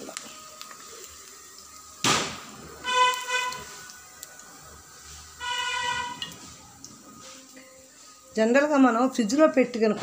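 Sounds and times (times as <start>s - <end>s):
food frying in oil: 0.0s - 10.0s
horn honking: 2.8s - 3.9s, 5.4s - 6.4s.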